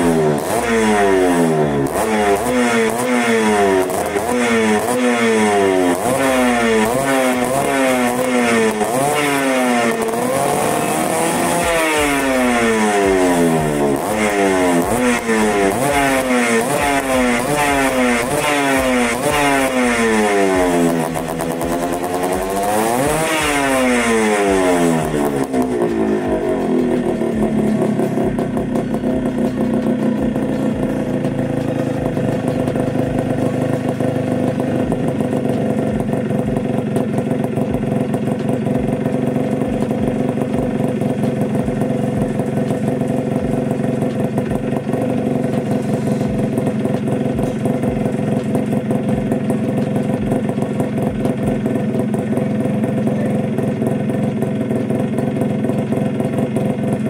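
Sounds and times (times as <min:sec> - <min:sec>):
two-stroke engine revving and idling: 0:00.0 - 0:57.0.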